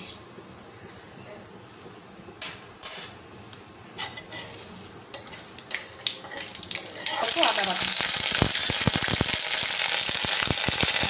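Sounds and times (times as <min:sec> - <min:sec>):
metal spatula scraping a wok: 0:04.0 - 0:07.5.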